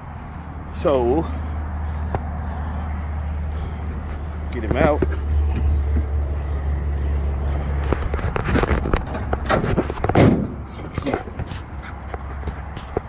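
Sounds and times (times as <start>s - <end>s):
low steady rumble: 0.0s - 12.1s
crate wire door clicking and rattling: 9.0s - 11.2s.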